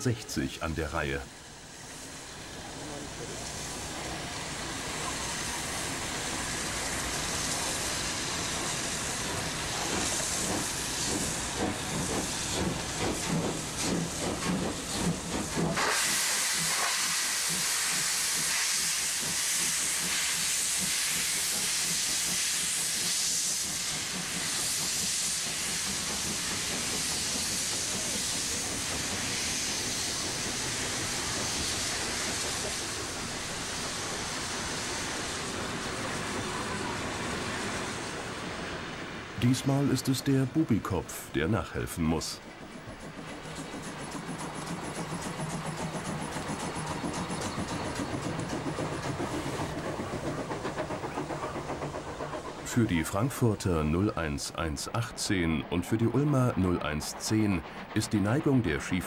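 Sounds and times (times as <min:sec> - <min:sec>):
loud hiss of steam: 0:00.1 - 0:59.0
steam locomotive exhaust beats: 0:00.4 - 0:59.0.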